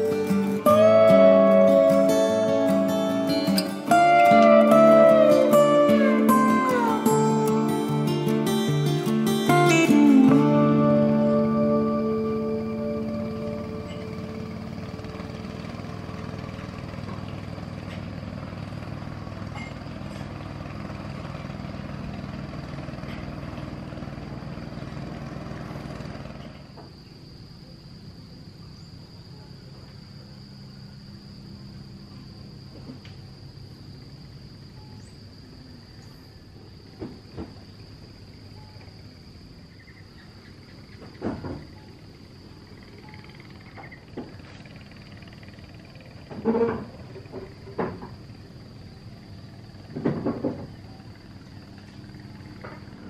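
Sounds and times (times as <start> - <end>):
small boat engine running: 0.0 - 26.8, 41.8 - 53.0
high insect whine: 0.0 - 53.0.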